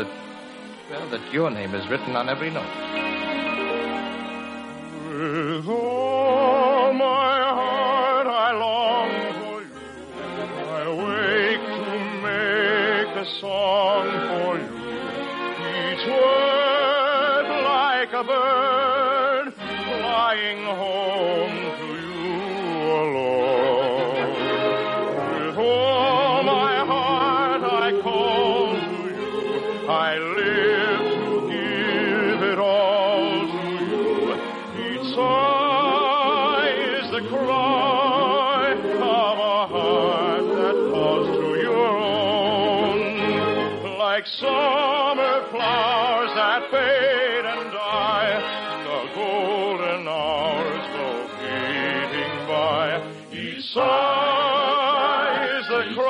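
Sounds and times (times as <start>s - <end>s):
orchestra: 0.0s - 56.0s
singer with vibrato: 25.2s - 56.0s.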